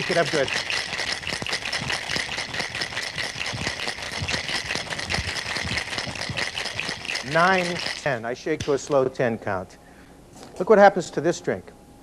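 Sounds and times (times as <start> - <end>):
ice rattling in cocktail shaker: 0.0 - 9.0.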